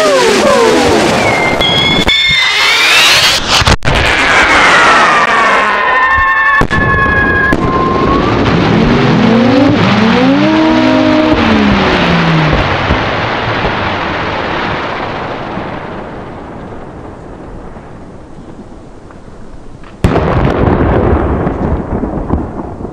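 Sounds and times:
low howling firework whistles: 0.0 - 3.6, 5.6 - 13.0
hiss of burning fireworks: 0.0 - 4.3, 7.5 - 22.9
high falling firework whistles: 0.0 - 12.6.

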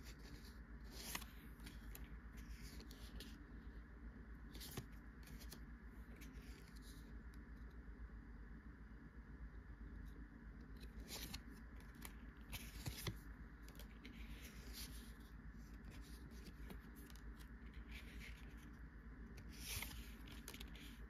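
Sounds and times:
cards swishing and scraping: 0.0 - 3.4, 4.4 - 7.1, 10.7 - 21.0
faint low hum: 0.0 - 21.0.

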